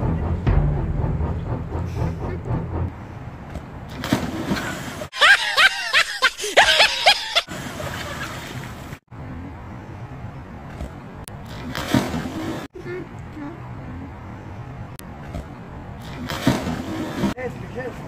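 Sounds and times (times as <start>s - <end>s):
steady outdoor noise: 0.0s - 18.0s
high-pitched cackling laughter: 5.2s - 8.3s.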